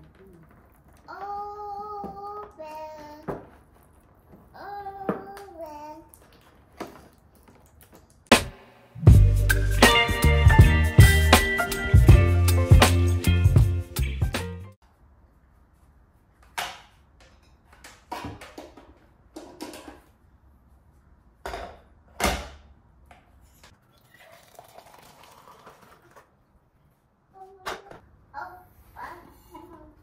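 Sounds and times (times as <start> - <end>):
water pouring into tumbler: 23.8 - 26.4.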